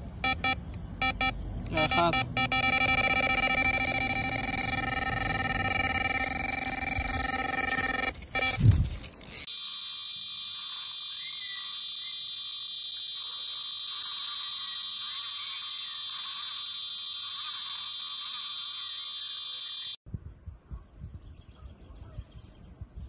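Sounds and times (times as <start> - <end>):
bite alarm continuous high tone: 0.2 - 8.5.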